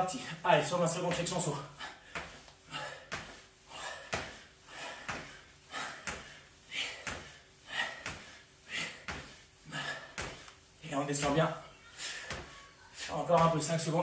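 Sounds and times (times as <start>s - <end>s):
forceful breath out: 1.8s - 10.5s
feet landing on tiled floor: 2.0s - 10.6s.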